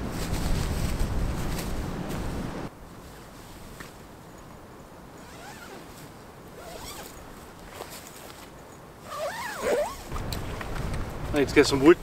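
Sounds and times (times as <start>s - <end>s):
quiet background hiss: 0.0s - 12.0s
zip being pulled: 5.2s - 6.0s, 6.6s - 8.0s, 9.0s - 10.1s.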